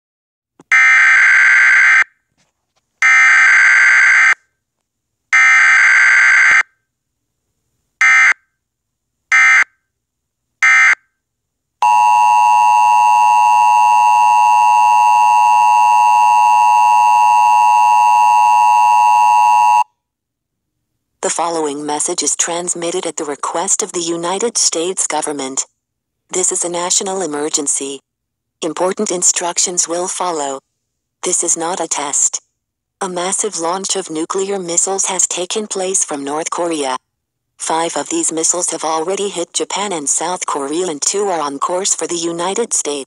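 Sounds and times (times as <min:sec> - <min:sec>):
screeching digital data tones: 0:11.8 - 0:19.9
two-tone attention signal: 0:11.8 - 0:19.9.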